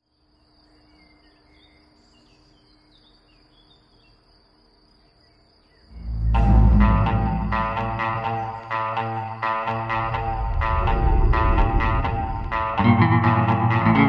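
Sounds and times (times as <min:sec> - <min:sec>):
insect trill: 0:00.0 - 0:14.0
bird chirps: 0:05.0 - 0:10.5.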